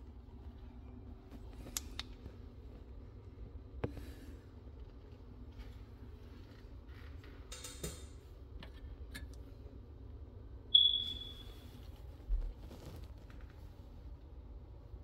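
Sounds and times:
low steady hum: 0:00.0 - 0:15.0
high-pitched chirp: 0:10.7 - 0:11.6.

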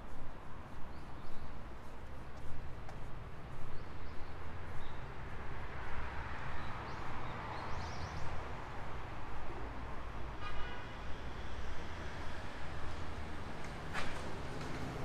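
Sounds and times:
low traffic rumble: 0:11.7 - 0:15.0.

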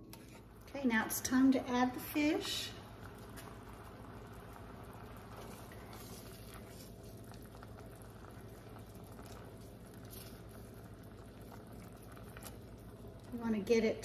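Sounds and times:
low steady hum: 0:00.0 - 0:14.0
sauce bubbling in a pan: 0:00.2 - 0:14.0.

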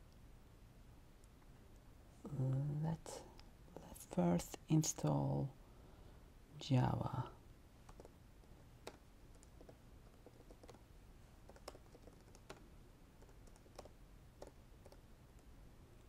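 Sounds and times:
keyboard typing clicks: 0:08.8 - 0:10.8, 0:11.5 - 0:12.6, 0:13.2 - 0:15.5.

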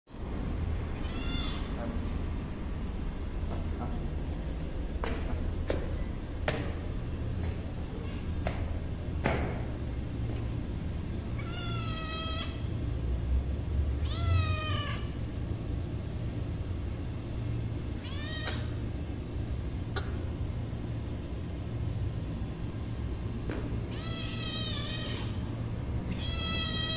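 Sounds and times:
steady low rumble: 0:00.1 - 0:26.9
kitten meowing: 0:01.0 - 0:01.9, 0:11.4 - 0:12.6, 0:14.0 - 0:15.1, 0:18.0 - 0:18.8, 0:23.9 - 0:25.4, 0:26.1 - 0:26.9.

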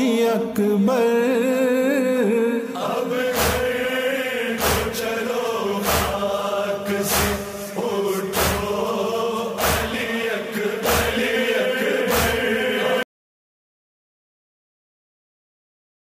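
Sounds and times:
voices chanting a lament: 0:00.0 - 0:13.1
heavy beat: 0:03.2 - 0:13.0.

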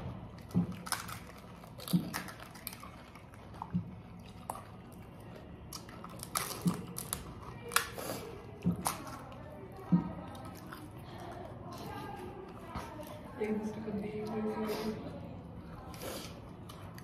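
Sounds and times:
crisp shells crunching: 0:00.3 - 0:05.0, 0:05.7 - 0:08.0.

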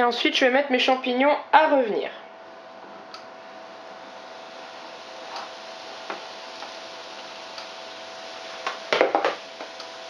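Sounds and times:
board and utensils knocking: 0:08.9 - 0:09.4.

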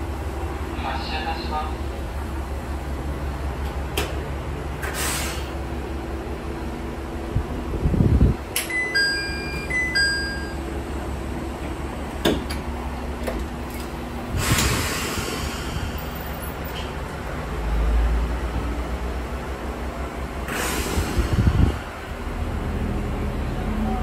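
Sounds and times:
diesel engine rumbling: 0:00.0 - 0:24.0
short electronic chime: 0:08.7 - 0:10.6.

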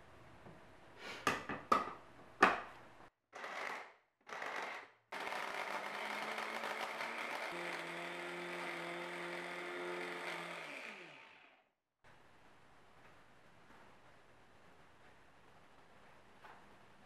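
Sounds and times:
electric chopper running: 0:05.2 - 0:11.6.

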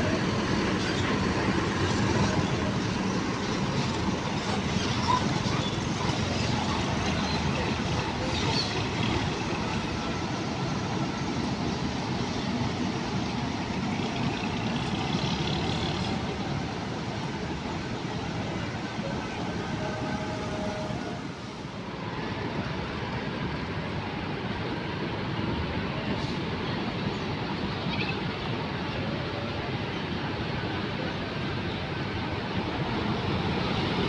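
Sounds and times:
bus diesel engine pulling away: 0:00.0 - 0:21.7, 0:25.9 - 0:27.4
traffic hum: 0:00.0 - 0:34.0.

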